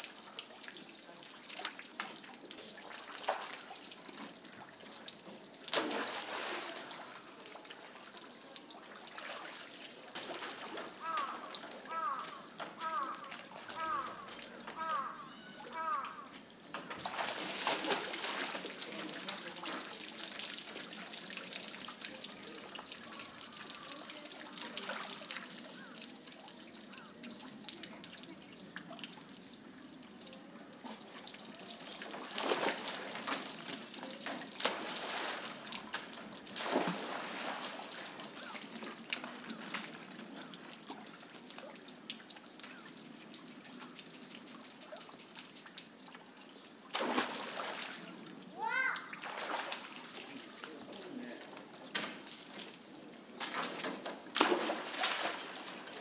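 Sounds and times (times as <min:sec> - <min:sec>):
water dripping: 0:00.0 - 0:56.0
monkeys splashing in water: 0:04.4 - 0:07.9, 0:08.6 - 0:28.0, 0:31.0 - 0:45.8, 0:46.9 - 0:51.0, 0:53.3 - 0:56.0
monkey plunging into water: 0:05.8 - 0:07.0, 0:36.6 - 0:37.9, 0:46.9 - 0:48.0.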